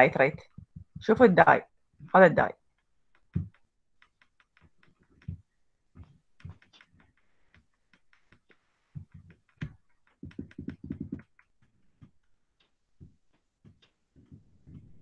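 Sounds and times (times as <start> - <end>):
mouse scroll wheel clicking: 3.1 - 5.4, 6.0 - 11.5.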